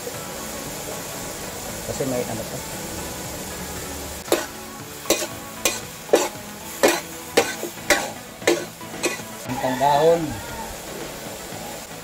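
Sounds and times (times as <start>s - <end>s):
meat frying in a wok: 0.0s - 12.0s
metal spatula scraping a pan: 4.2s - 9.4s.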